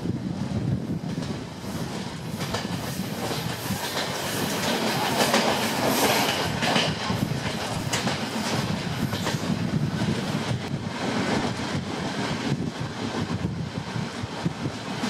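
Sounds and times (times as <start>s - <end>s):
train wheels clacking over rail joints: 1.1s - 12.4s.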